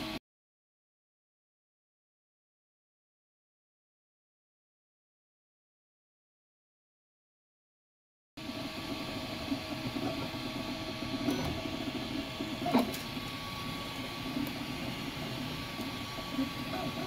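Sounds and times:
printer stepper motors whirring: 0:08.4 - 0:17.0.

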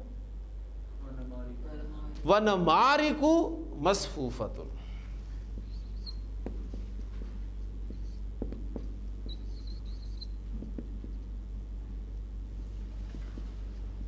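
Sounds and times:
low electrical hum: 0:00.0 - 0:14.0
marker squeaking on whiteboard: 0:05.5 - 0:06.9, 0:07.8 - 0:11.1.

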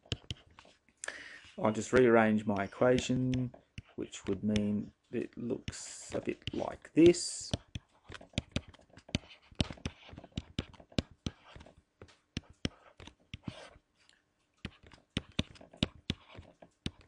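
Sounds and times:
pen scratching on tablet: 0:00.0 - 0:00.8, 0:01.4 - 0:13.8, 0:14.6 - 0:17.0
pen tip tapping on tablet: 0:01.9 - 0:04.7, 0:05.6 - 0:13.6, 0:14.6 - 0:17.0.

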